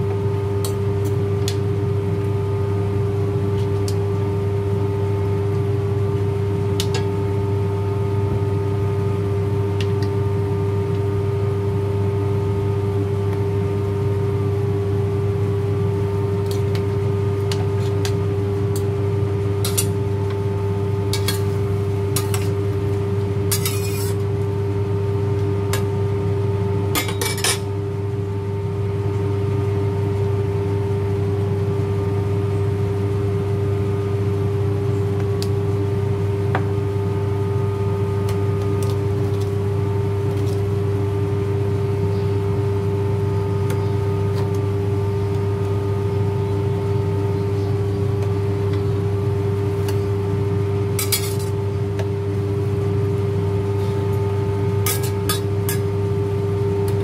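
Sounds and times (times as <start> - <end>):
loud mechanical hum: 0.0 - 57.0
spatula scraping a wok: 23.5 - 24.2.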